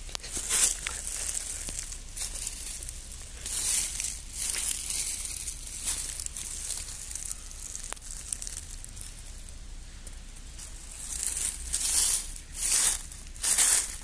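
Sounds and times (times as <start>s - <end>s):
dry leaves rustling: 0.0s - 14.0s.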